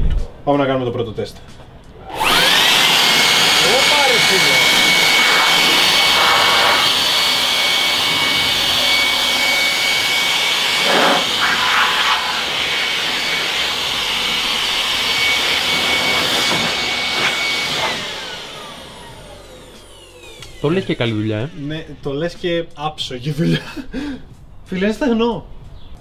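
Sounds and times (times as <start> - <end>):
electric leaf blower whining: 1.9 - 22.5.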